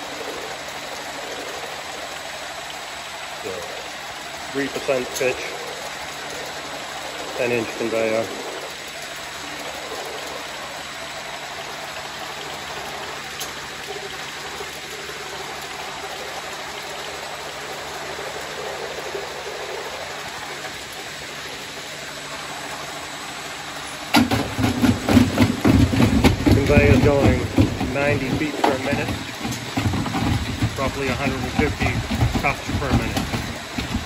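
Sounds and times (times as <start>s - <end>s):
conveyor whirring: 0.0s - 34.0s
loud clatter of knocks: 24.1s - 34.0s.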